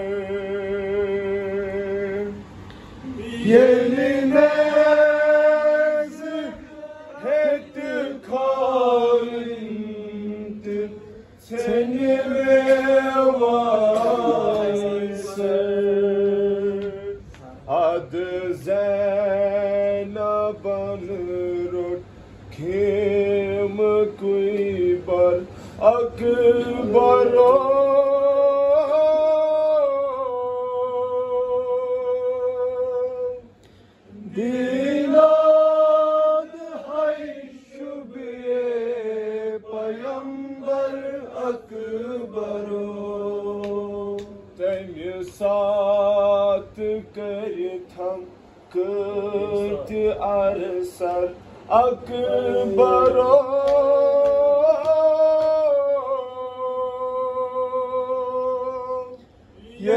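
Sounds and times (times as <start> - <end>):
man singing a lament: 3.2 - 33.5, 34.3 - 59.9.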